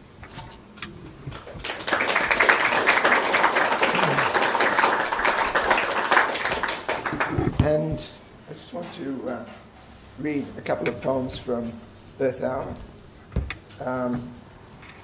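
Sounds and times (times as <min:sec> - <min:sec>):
audience applauding: 0:01.4 - 0:07.4.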